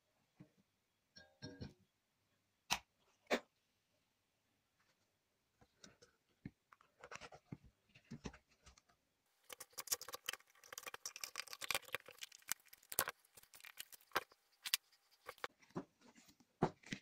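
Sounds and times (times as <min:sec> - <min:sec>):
rustling: 0:09.4 - 0:17.0.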